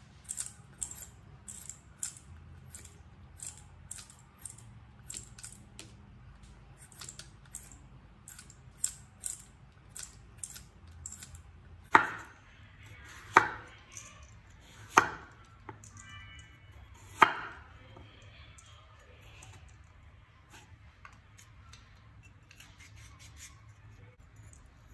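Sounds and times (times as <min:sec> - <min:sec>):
peeler scraping potato: 0:00.2 - 0:05.8, 0:06.8 - 0:12.3, 0:20.4 - 0:24.9.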